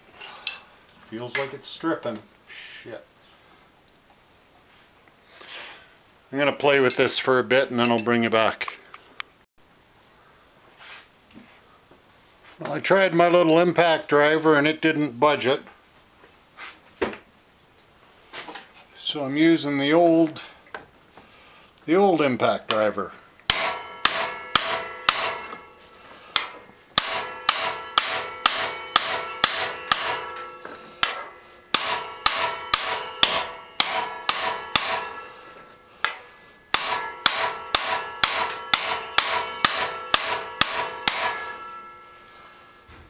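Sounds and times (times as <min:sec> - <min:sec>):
hammer striking impact driver: 0:23.5 - 0:25.7, 0:26.3 - 0:42.0.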